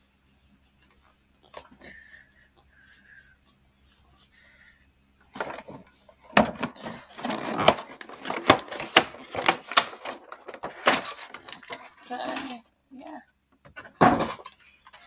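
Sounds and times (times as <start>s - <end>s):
packaging crackling and clicking: 6.6s - 12.0s.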